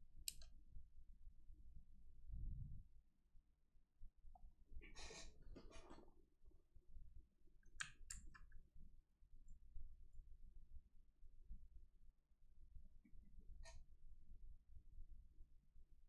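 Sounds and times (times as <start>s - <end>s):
faint computer mouse clicks: 0.2s - 0.5s.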